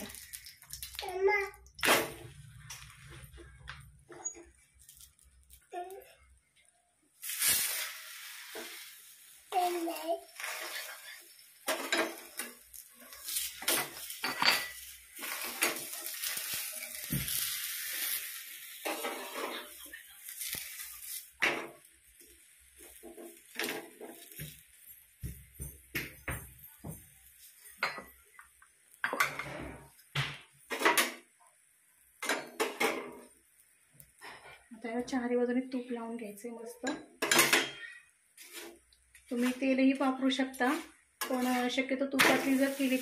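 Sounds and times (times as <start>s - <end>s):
hiss: 7.2s - 11.3s, 15.2s - 21.4s
steel utensils clinking and scraping: 10.2s - 21.7s.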